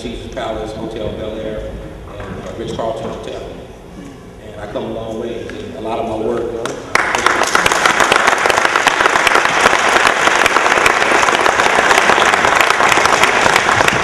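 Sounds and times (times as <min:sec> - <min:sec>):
audience applauding: 0:06.6 - 0:14.0.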